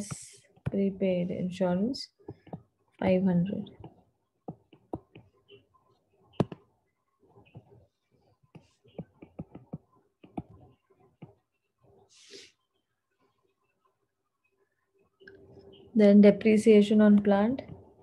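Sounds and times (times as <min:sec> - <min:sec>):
stylus tapping on tablet screen: 0:02.2 - 0:05.4, 0:06.3 - 0:06.7, 0:07.3 - 0:07.9, 0:08.5 - 0:11.4.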